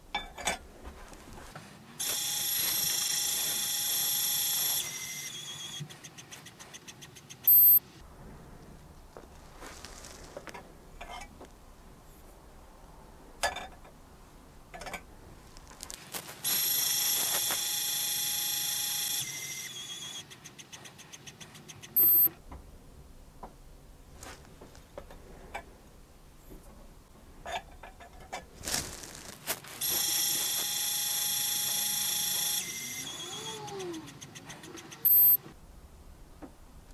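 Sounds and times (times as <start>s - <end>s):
short beep: 7.5s - 7.8s, 22.0s - 22.3s, 35.1s - 35.4s
dispenser motor whining: 29.8s - 34.2s.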